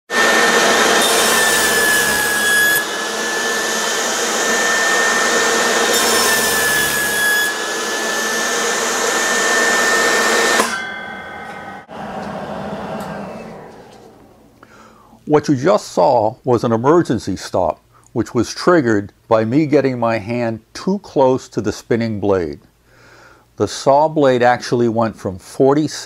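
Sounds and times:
saw cutting wood: 0.1 - 14.3
blade whirring down: 0.1 - 14.6
table saw whining: 0.1 - 14.7.

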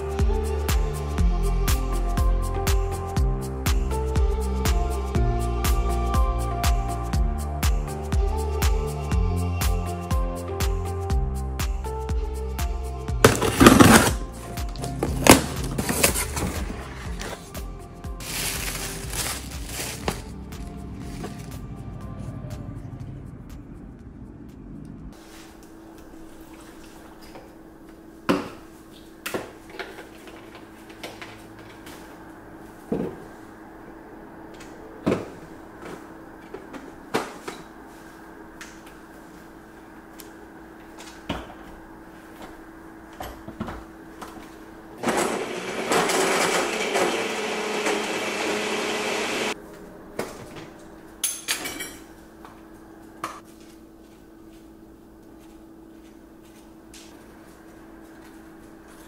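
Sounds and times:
steady low hum: 0.0 - 45.0, 49.5 - 59.0
blender motor running: 45.0 - 49.6
dishes and utensils clattering: 51.2 - 52.1.

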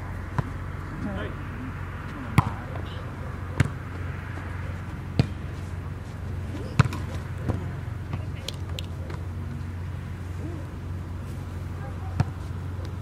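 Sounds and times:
steady low hum: 0.0 - 13.0
volleyball smacks: 2.4 - 2.6.

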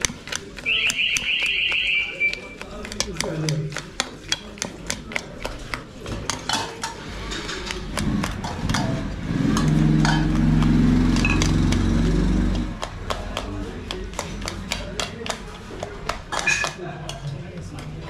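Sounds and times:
spoons clinking against pots: 11.2 - 11.5, 16.3 - 17.2.

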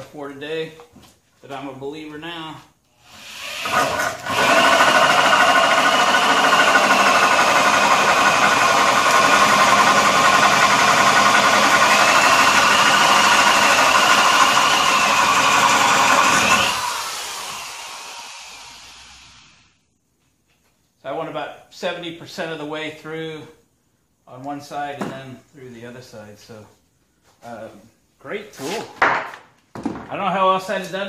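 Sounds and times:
electric drill cutting wood: 3.0 - 19.7.

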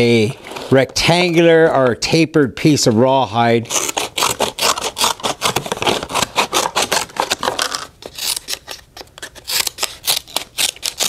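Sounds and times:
scissors snipping rawhide: 9.3 - 11.0.

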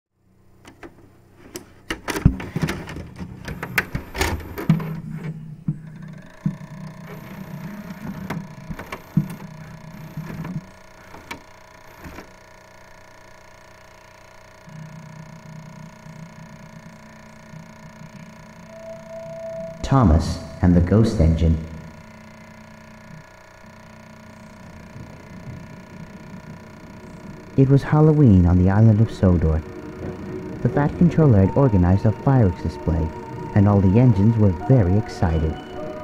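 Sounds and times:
vcr mechanism clunking and clicking: 0.6 - 12.3
motor whir: 3.4 - 36.0
playback hum with high tone: 3.5 - 36.0.

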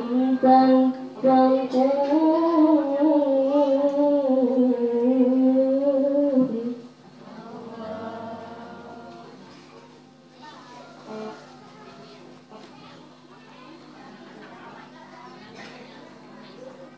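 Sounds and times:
girl chanting melodically: 0.0 - 9.4.

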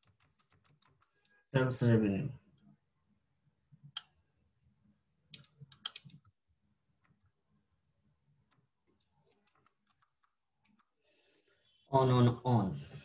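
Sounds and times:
mouse and keyboard clicks: 5.3 - 6.4, 8.5 - 11.0.

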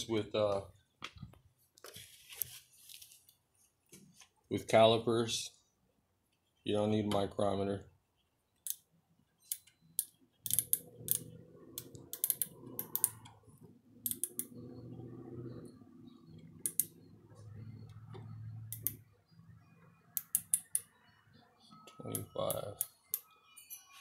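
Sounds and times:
sharp metallic micrometer clicks: 8.6 - 13.4, 14.0 - 14.6, 16.6 - 17.0, 18.6 - 19.0, 20.2 - 20.9
low steady hum: 9.9 - 23.6.

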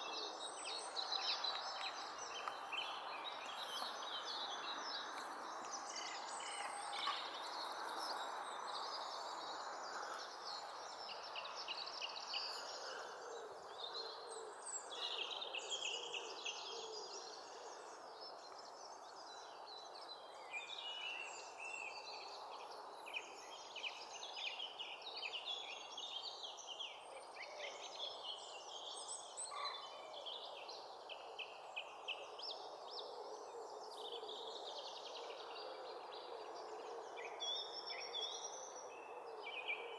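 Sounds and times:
small birds chirping: 0.0 - 16.5.

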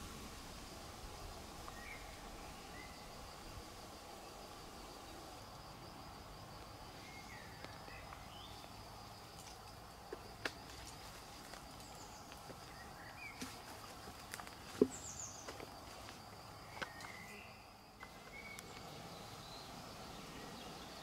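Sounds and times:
small birds chirping: 6.5 - 9.3, 10.9 - 21.0.

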